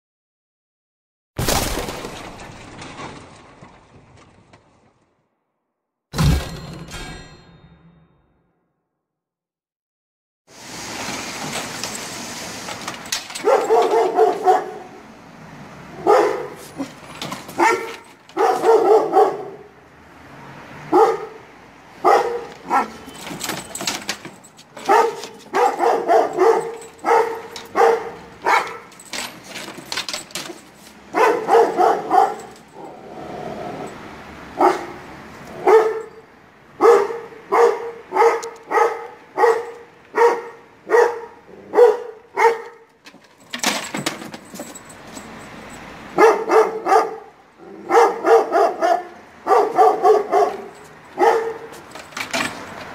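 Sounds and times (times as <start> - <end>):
neighbouring dogs barking: 13.2 - 19.8, 20.6 - 52.9
dog barking deeply: 13.4 - 15.0, 15.9 - 16.6, 17.6 - 19.7, 20.9 - 21.4, 22.0 - 23.0, 24.9 - 28.9, 31.1 - 33.9, 34.5 - 36.1, 36.8 - 42.8, 46.2 - 51.7.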